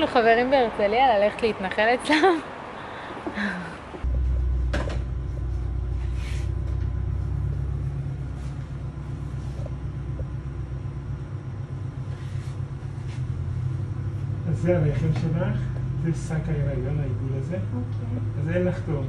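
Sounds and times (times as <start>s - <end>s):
low rumble: 3.9s - 19.0s
faint rustles: 5.3s - 10.6s.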